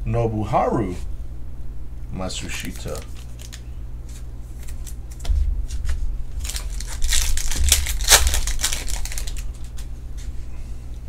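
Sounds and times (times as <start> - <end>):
foil wrapper crinkling and tearing: 2.5 - 9.9.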